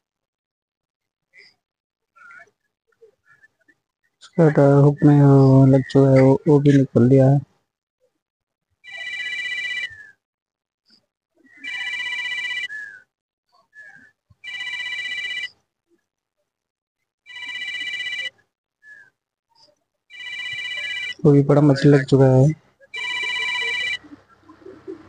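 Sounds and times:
telephone ringing: 8.8 - 10.0, 11.6 - 12.8, 14.4 - 15.6, 17.3 - 18.3, 20.1 - 24.2.

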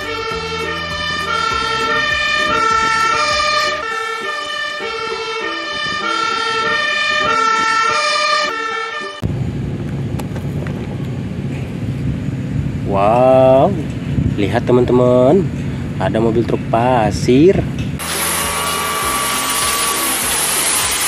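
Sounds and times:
fire engine two-tone siren: 0.0 - 9.3, 18.0 - 21.0
outdoor background noise: 9.2 - 18.0
low engine rumble: 9.2 - 19.5.

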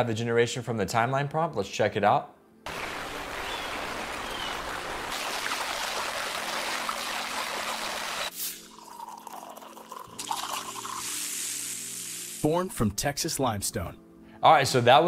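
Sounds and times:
river rushing: 2.7 - 8.3
water trickling: 2.7 - 12.2
water pouring into a can: 4.7 - 12.4
hiss: 8.3 - 8.7, 10.9 - 12.4.

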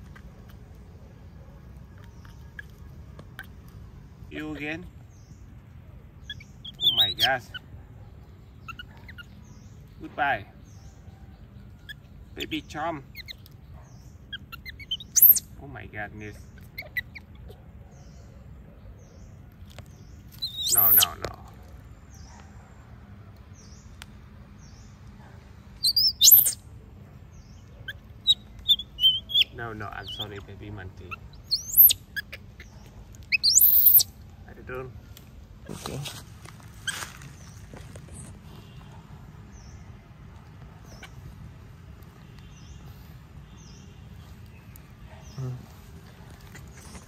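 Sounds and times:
animal chirps: 6.2 - 7.7, 8.4 - 9.8, 11.7 - 15.6, 16.3 - 18.3, 20.3 - 21.4, 25.8 - 26.7, 27.3 - 34.2, 40.8 - 41.4
animal shrill squeal: 20.4 - 21.2, 25.8 - 26.6, 33.4 - 34.1.

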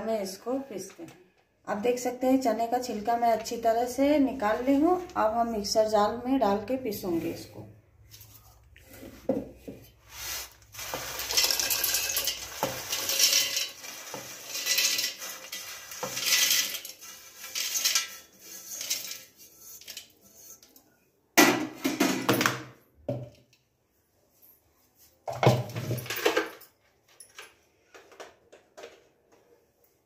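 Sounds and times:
scraping on a steel plate: 10.2 - 20.8
chickpeas rattling into steel jar: 10.7 - 20.1.

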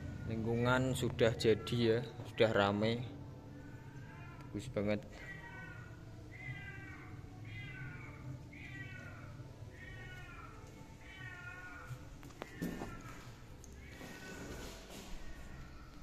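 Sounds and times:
animal wavering cries: 3.5 - 14.6.

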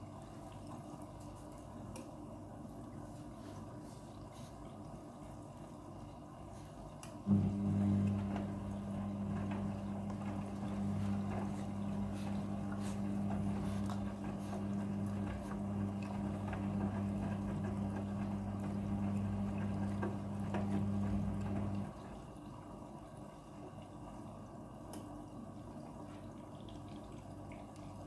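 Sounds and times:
washing machine drum humming: 4.7 - 28.0
wet laundry tumbling: 7.2 - 22.2.

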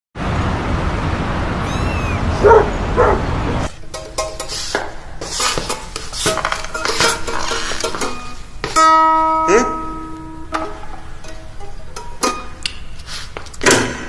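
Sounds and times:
street noise: 0.2 - 14.0
dog barking: 2.4 - 3.4.

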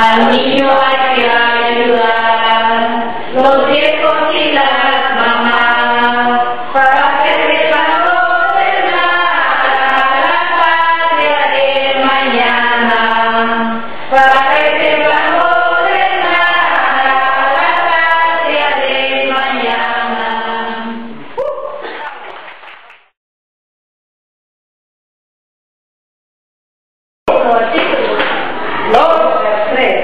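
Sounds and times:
voices singing in chant style: 0.0 - 21.9.

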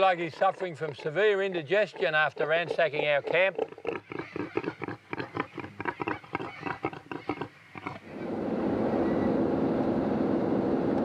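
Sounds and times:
pig grunting: 0.0 - 8.2
engine and road noise inside car: 8.2 - 11.0.

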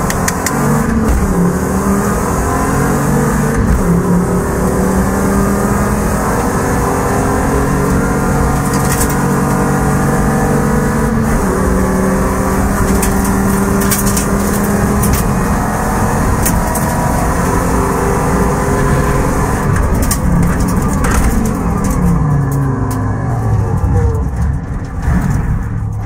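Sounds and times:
car engine running: 0.0 - 26.0
clicks and rattles: 8.5 - 9.5, 12.8 - 15.4, 16.4 - 17.1, 19.7 - 23.1.

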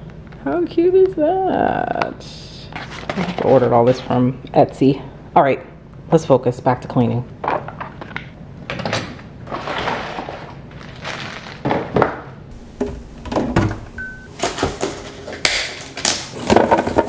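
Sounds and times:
rustling: 9.5 - 11.7.

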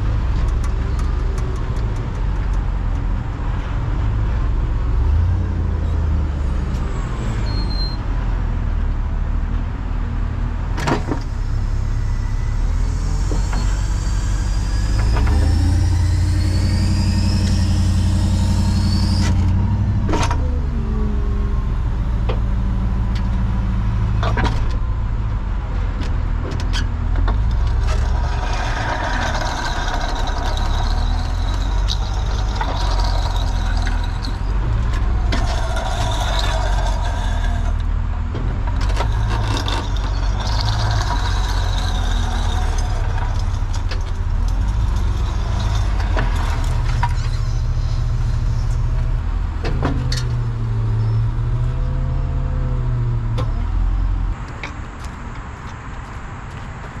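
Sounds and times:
truck engine rumbling: 0.0 - 57.0
wavering tones: 11.6 - 19.8.

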